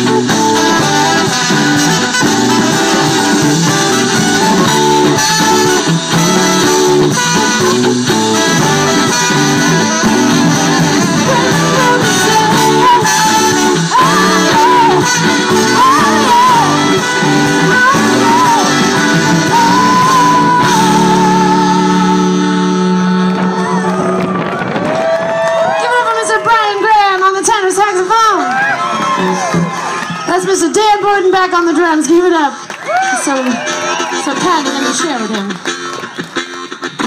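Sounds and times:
live band playing: 0.0 - 37.0
woman singing: 10.7 - 24.2.

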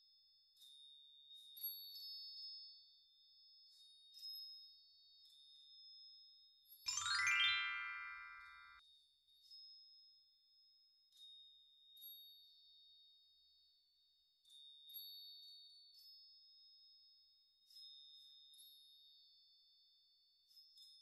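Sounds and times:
high chime-like music notes: 6.9 - 8.8.

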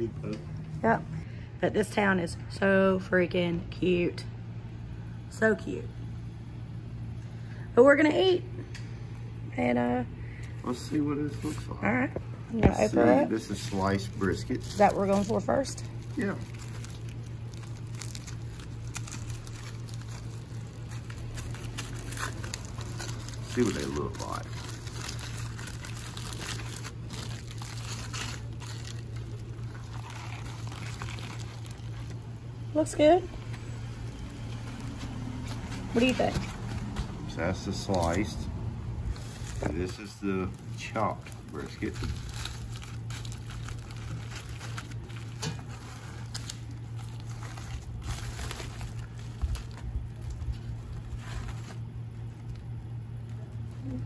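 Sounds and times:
steady low hum: 0.0 - 54.0
aluminium foil crinkling: 12.8 - 32.4, 33.4 - 38.4, 39.0 - 54.0.

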